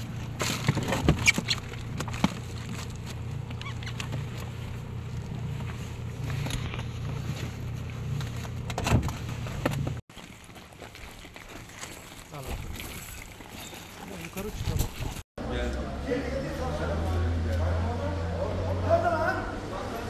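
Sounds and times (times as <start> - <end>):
outboard motor idling: 1.4 - 8.7.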